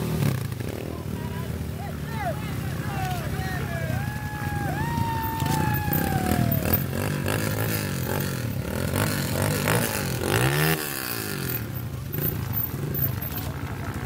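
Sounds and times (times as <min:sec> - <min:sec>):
dirt bike engines revving: 0:00.0 - 0:14.0
wheels spinning in mud: 0:00.0 - 0:14.0.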